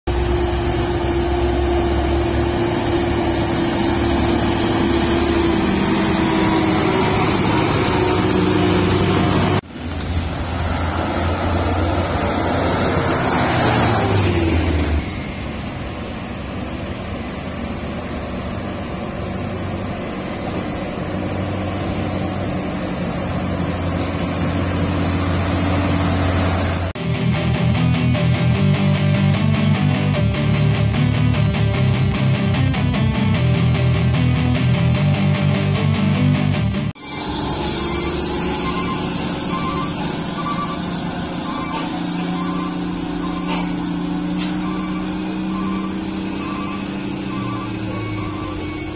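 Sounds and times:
diesel truck engine: 0:00.0 - 0:27.0, 0:27.7 - 0:48.9
engine revving: 0:00.1 - 0:27.0, 0:36.8 - 0:48.9.

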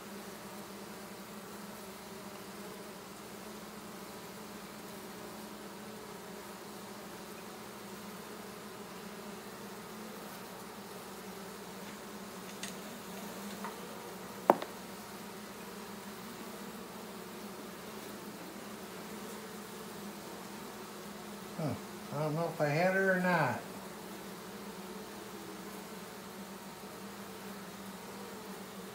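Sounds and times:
bees buzzing: 0:00.0 - 0:28.9
sharp tap: 0:14.5 - 0:14.7.

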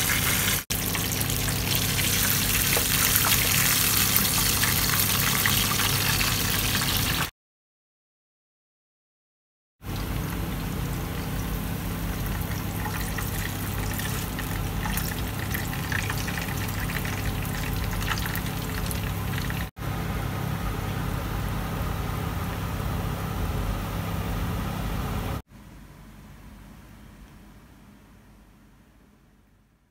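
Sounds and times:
hot oil sizzling and crackling: 0:00.0 - 0:07.3, 0:09.9 - 0:19.7
steady low hum: 0:09.9 - 0:29.9.

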